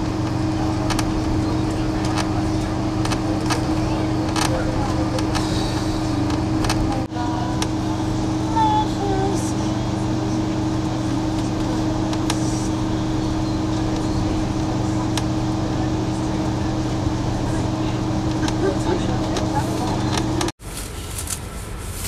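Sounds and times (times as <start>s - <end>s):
train carriage rumble: 0.0s - 22.0s.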